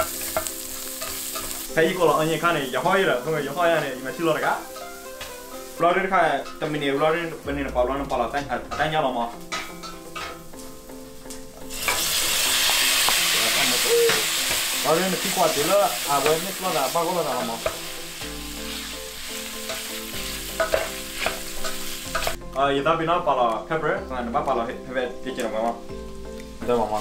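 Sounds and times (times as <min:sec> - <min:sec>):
pork sizzling in hot oil: 0:00.0 - 0:07.4, 0:09.0 - 0:22.6, 0:25.2 - 0:27.0
spatula scraping a pan: 0:00.0 - 0:07.4, 0:08.7 - 0:10.7, 0:11.7 - 0:22.4.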